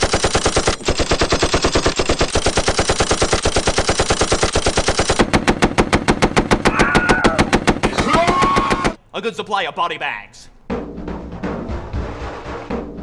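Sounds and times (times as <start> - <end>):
automatic machine-gun fire: 0.0 - 9.0.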